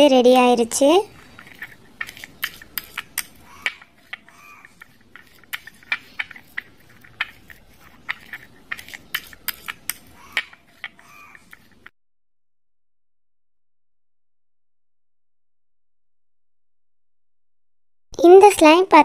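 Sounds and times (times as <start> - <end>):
spoon stirring thick slime: 0.4 - 11.9.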